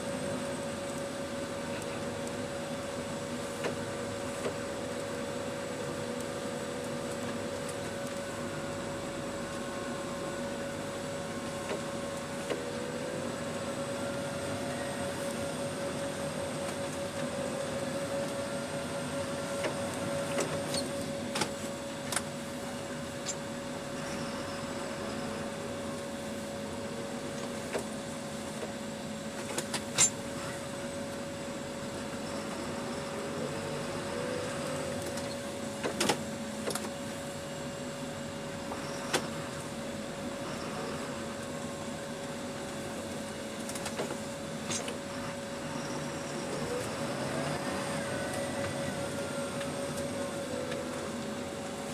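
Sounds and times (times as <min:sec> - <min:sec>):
steady whine: 0:00.0 - 0:51.9
tractor engine droning: 0:31.8 - 0:51.9.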